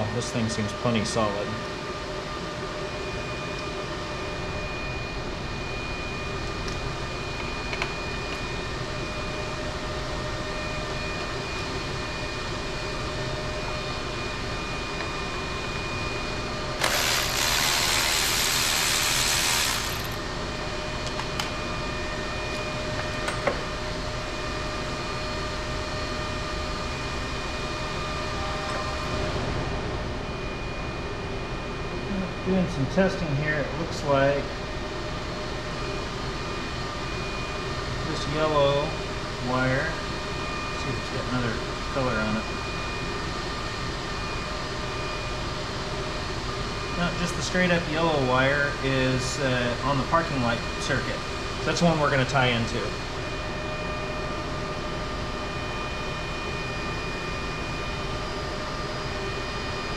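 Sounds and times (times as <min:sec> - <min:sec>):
ventilation machinery humming: 0:00.0 - 0:59.9
loud rushing hiss: 0:16.8 - 0:20.2.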